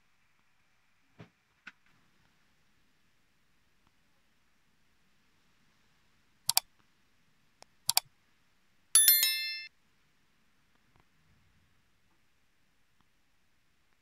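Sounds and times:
bell notification ding: 0:09.0 - 0:09.7.

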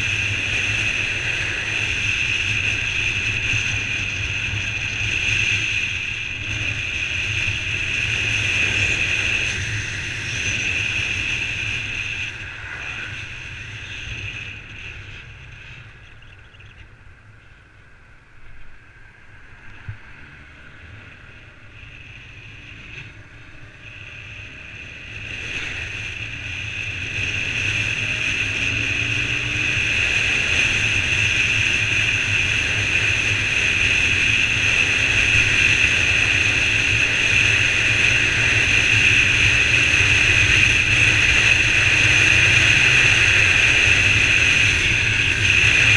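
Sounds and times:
motorcycle engine running: 0:00.0 - 0:45.9
wind rushing over microphone: 0:18.3 - 0:45.9.

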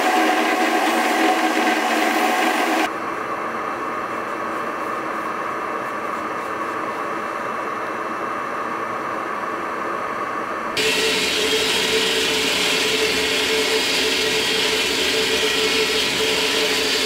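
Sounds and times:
machine hum and hiss: 0:00.0 - 0:17.0
belt grinder grinding steel: 0:10.8 - 0:17.0.

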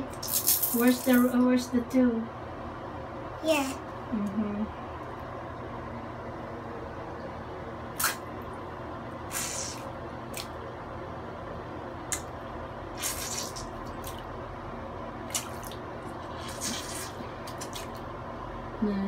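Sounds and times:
steady low hum: 0:00.0 - 0:19.0
bath water splashing: 0:15.2 - 0:18.1.

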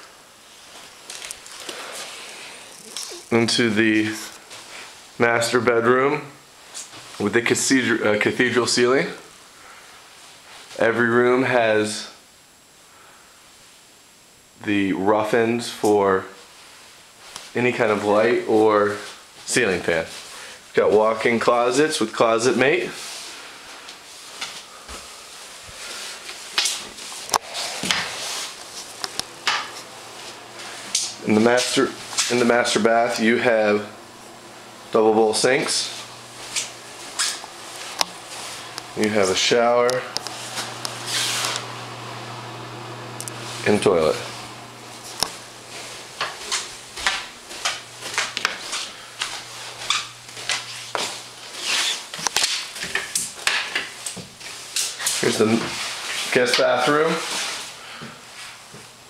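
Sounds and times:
faint steady hiss: 0:00.0 - 0:59.0
low steady hum: 0:16.9 - 0:51.6
clothing rustle: 0:22.9 - 0:33.0
footsteps: 0:22.9 - 0:42.3, 0:43.0 - 0:58.9.

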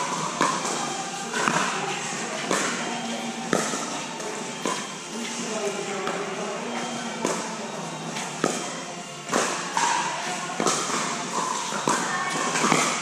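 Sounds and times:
paddles hitting plastic ball: 0:08.4 - 0:13.0.

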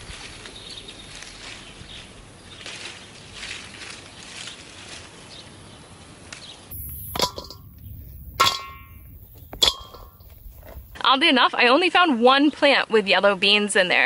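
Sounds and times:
leaves rustling: 0:00.0 - 0:11.1
metal mixing bowl clanging: 0:06.7 - 0:11.0.

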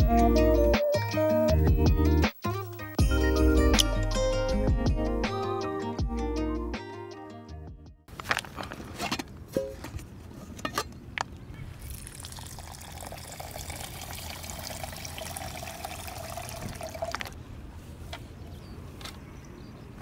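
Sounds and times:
water pouring into pot onto rice: 0:11.9 - 0:17.2.

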